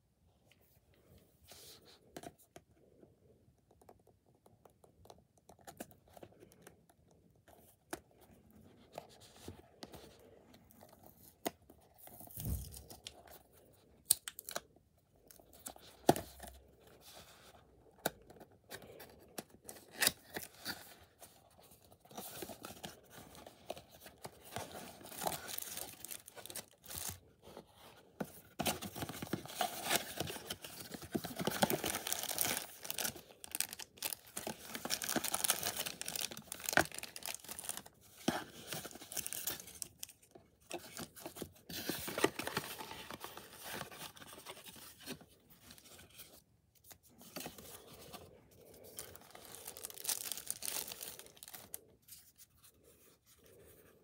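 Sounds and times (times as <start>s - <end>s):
plastic bags and paper rustling: 28.6s - 40.1s, 47.4s - 51.9s.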